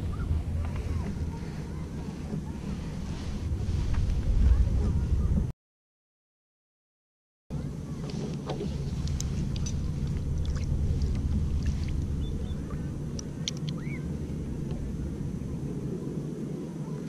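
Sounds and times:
wind buffeting microphone: 0:00.0 - 0:05.5, 0:07.5 - 0:17.0
faint clicks: 0:08.1 - 0:12.0, 0:13.1 - 0:13.9.

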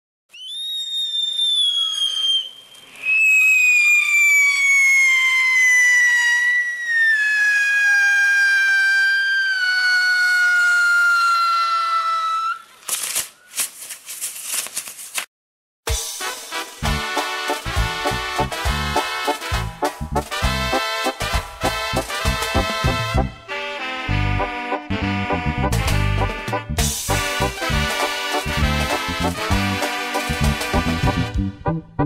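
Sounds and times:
firework whistle falling in pitch: 0:00.3 - 0:12.6.

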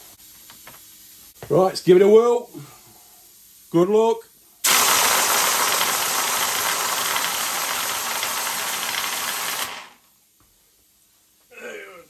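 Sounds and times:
air blow gun hissing: 0:04.6 - 0:10.0
balls whirling in plastic bottle: 0:04.8 - 0:10.0.

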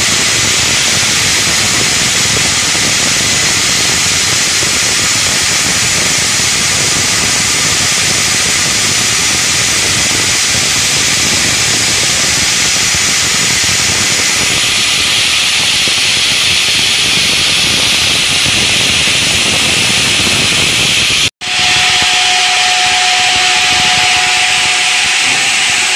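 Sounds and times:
saw blades grinding stone: 0:21.4 - 0:25.9.

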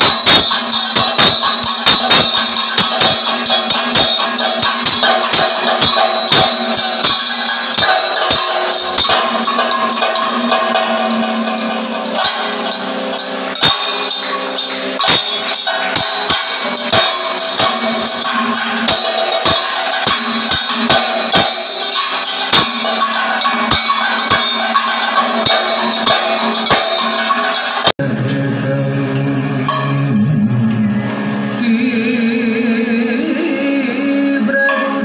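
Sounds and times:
drums beating sharp strokes: 0:00.0 - 0:28.0
metallic ringing: 0:00.0 - 0:28.0, 0:29.4 - 0:35.0.

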